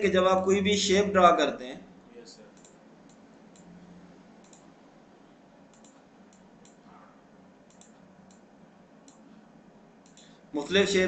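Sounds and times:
low background hiss: 0.0s - 11.0s
computer mouse clicks: 2.5s - 4.8s, 5.6s - 9.4s, 10.0s - 10.4s.

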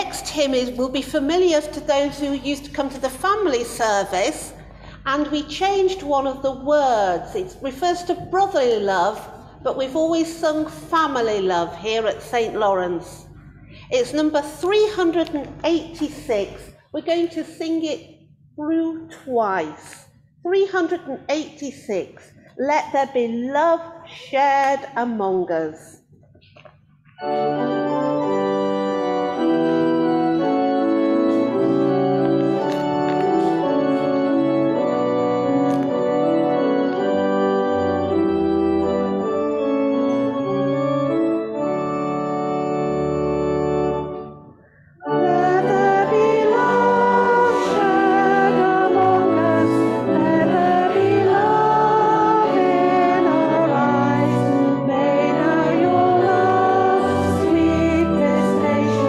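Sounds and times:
organ playing held chords: 27.2s - 59.0s
congregation singing a hymn: 27.4s - 38.4s, 45.0s - 59.0s.

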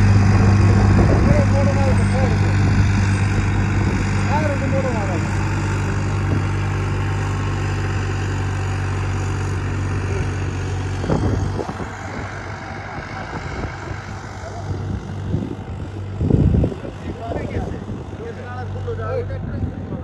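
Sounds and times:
harrow rumbling through dry soil: 0.0s - 20.0s
tractor diesel engine droning: 0.0s - 20.0s.

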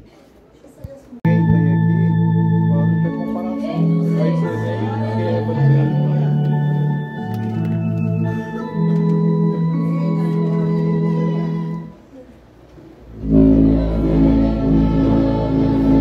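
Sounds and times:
organ playing a hymn: 1.3s - 12.0s, 13.1s - 16.0s.

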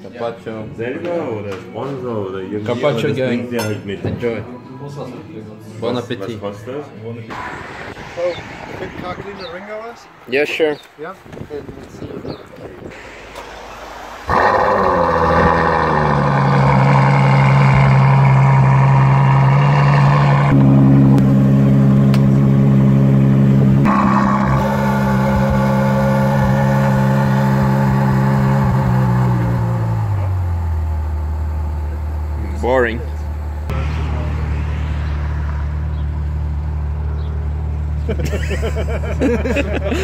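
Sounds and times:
car engine starting and idling: 12.9s - 40.0s.

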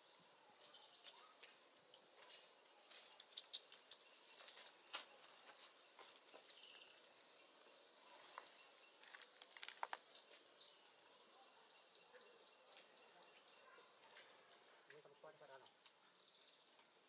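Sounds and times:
faint chirp: 0.0s - 17.0s
soft clicks and rustles: 8.2s - 10.5s.

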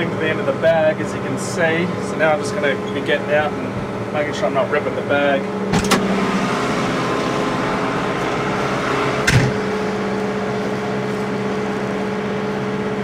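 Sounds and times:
tractor engine running: 0.0s - 13.0s
cab door shutting: 5.7s - 6.2s, 9.2s - 9.7s.

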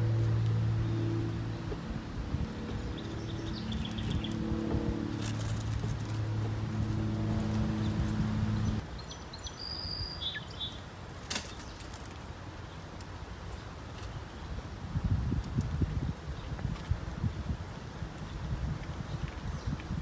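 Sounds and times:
engine hum: 0.0s - 9.0s
bird chirps: 2.3s - 5.2s, 7.5s - 10.8s.

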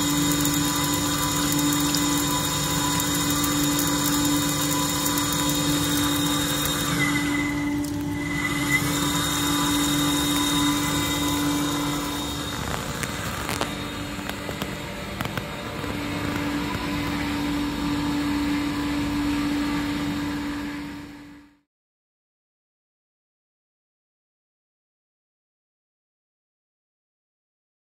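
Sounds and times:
machine motor hum: 0.0s - 21.6s.

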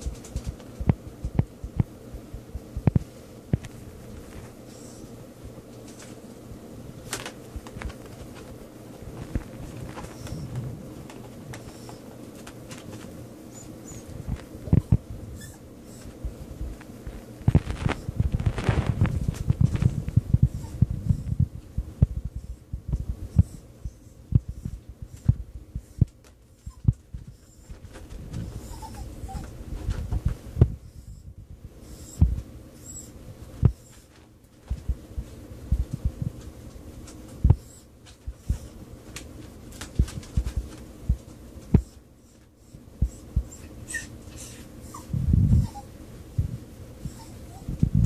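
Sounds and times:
dull low thumps: 0.8s - 3.1s, 17.4s - 25.9s, 29.8s - 32.5s, 34.7s - 36.4s
dog sniffing: 4.5s - 5.2s, 9.4s - 16.8s, 23.3s - 29.5s
paws thumping on wood: 33.6s - 42.0s.

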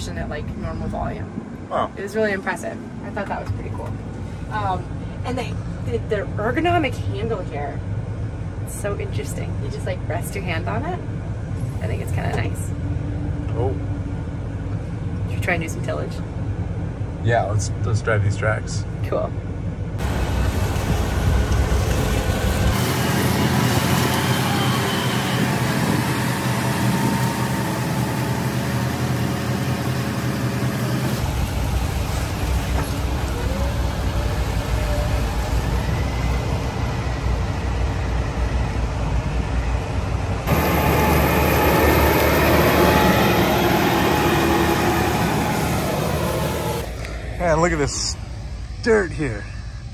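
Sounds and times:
tractor engine under load: 20.0s - 37.3s, 40.4s - 47.7s.

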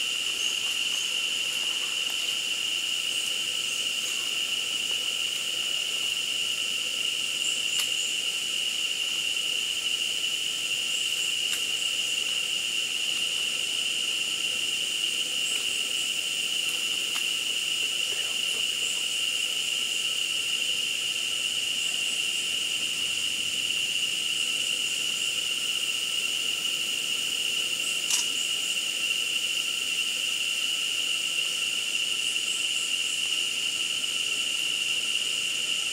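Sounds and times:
insect chorus drone: 0.0s - 35.9s
sharp click: 28.1s - 28.4s.

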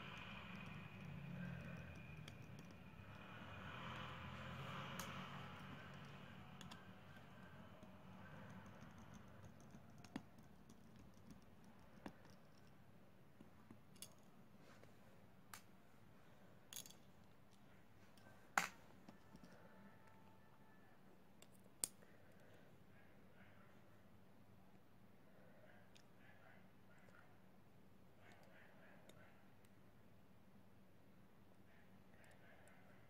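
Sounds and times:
small tools clicking and tapping: 0.0s - 12.8s, 13.4s - 14.3s, 16.7s - 20.2s.

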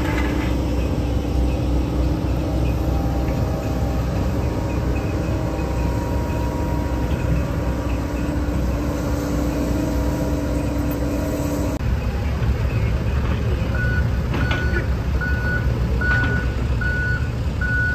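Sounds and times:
hydraulic whine: 0.0s - 12.2s
excavator engine rumbling: 0.0s - 17.9s.

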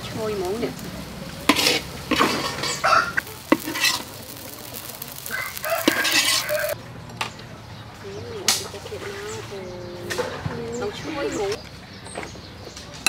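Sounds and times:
food sizzling: 0.0s - 6.8s
spatula scraping in a wok: 1.4s - 6.8s.

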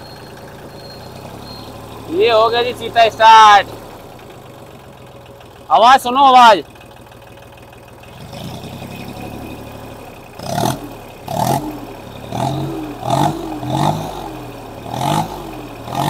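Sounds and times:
diesel tractor engine revving: 0.0s - 16.0s.

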